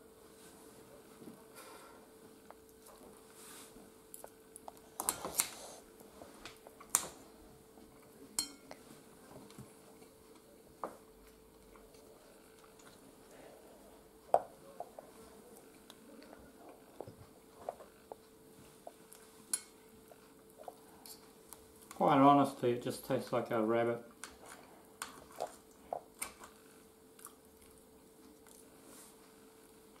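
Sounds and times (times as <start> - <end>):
faint steady hum: 0.0 - 30.0
cutlery clinking on ceramic bowl: 8.4 - 8.7.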